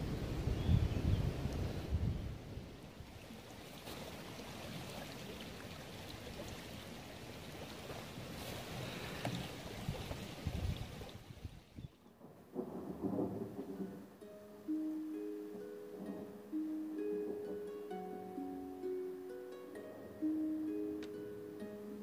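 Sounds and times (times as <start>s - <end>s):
woodland ambience rushing noise: 0.0s - 12.3s.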